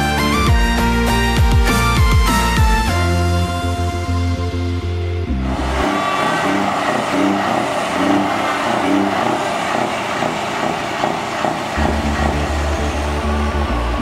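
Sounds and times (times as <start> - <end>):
electronic dance music: 5.4 - 14.0
hissing noise sweep: 5.4 - 14.0.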